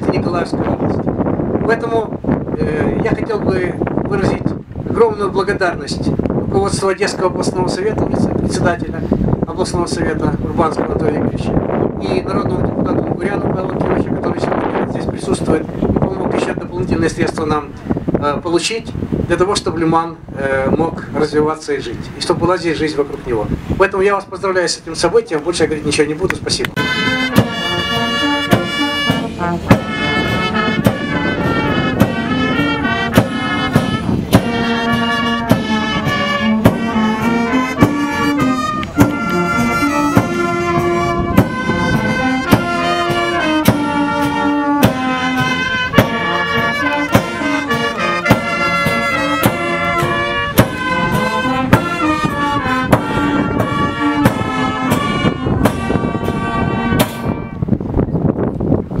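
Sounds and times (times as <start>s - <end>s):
bass drum beat: 26.8s - 57.4s
brass band playing: 26.8s - 57.8s.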